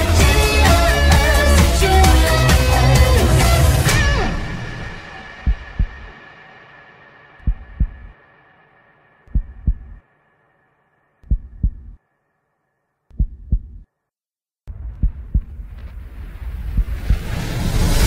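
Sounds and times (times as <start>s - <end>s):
soundtrack music: 0.0s - 8.5s
heartbeat thumps: 5.4s - 6.2s, 7.4s - 8.2s, 9.3s - 10.0s, 11.2s - 12.0s, 13.1s - 13.9s, 14.7s - 15.9s, 16.6s - 17.4s.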